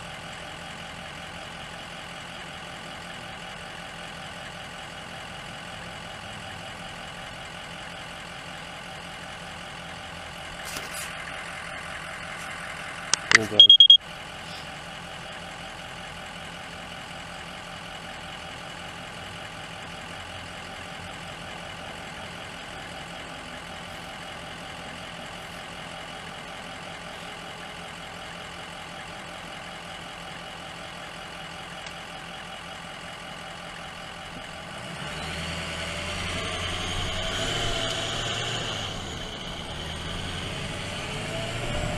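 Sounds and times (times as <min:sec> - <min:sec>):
vehicle engines idling: 0:00.0 - 0:41.9
traffic pulling away: 0:00.4 - 0:41.9.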